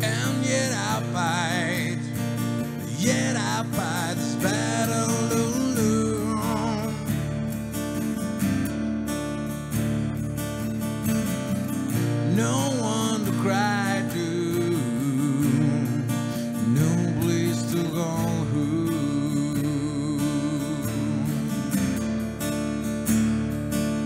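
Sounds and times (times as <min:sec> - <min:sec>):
man singing: 0:00.0 - 0:07.5, 0:12.2 - 0:22.2
strummed acoustic guitar: 0:00.0 - 0:24.0.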